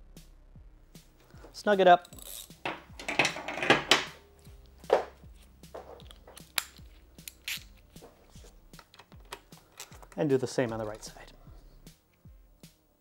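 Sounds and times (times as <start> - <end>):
handling noises: 1.2 - 11.3
metal hand tool clinking: 2.0 - 3.7, 6.0 - 8.0.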